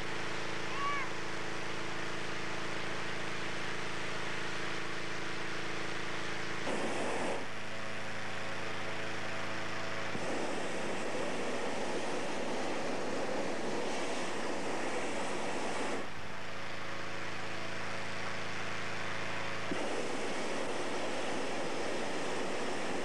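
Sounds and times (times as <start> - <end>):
inflator fan running: 0.0 - 23.0
rushing of air: 6.6 - 7.5, 10.1 - 16.1, 19.7 - 23.0.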